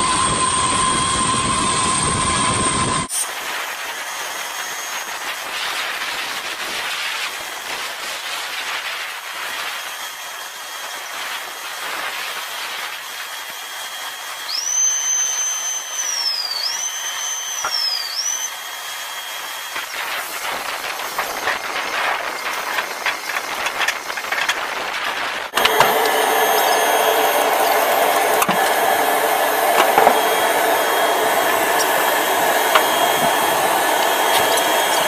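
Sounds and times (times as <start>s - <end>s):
high whine: 0.0s - 3.4s, 19.6s - 35.0s
aircraft turbine hiss: 17.9s - 35.0s.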